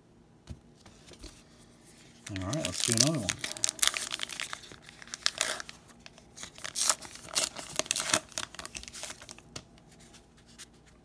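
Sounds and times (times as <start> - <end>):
card pack wrapper tearing and crinkling: 2.2 - 9.8.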